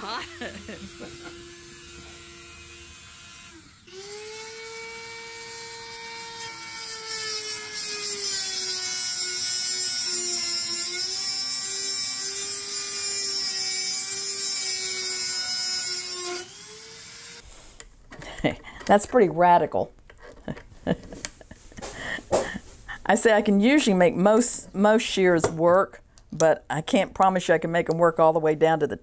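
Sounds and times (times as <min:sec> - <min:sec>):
rotary tool motor whine: 0:00.1 - 0:17.4.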